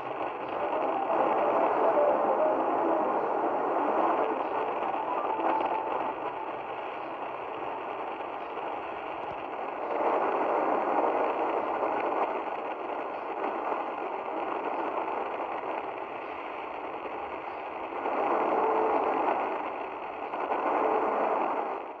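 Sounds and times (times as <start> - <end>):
weak radio programme audio: 0.0 - 8.0
radio static hiss: 0.0 - 21.8.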